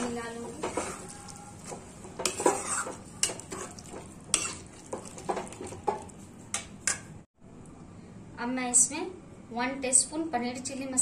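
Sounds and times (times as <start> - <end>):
metal spatula scraping pan: 0.0 - 6.1
curry sizzling: 0.0 - 7.3.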